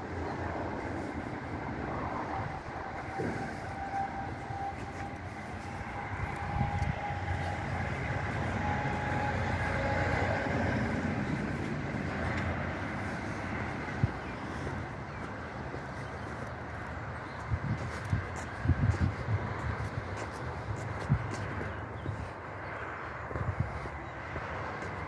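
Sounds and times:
faint whine: 0.0s - 17.2s
diesel truck engine idling: 0.0s - 17.5s.

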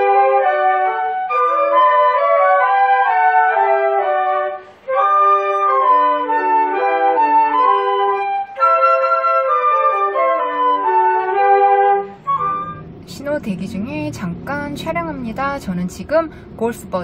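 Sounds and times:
flutes playing in harmony: 0.0s - 13.0s.

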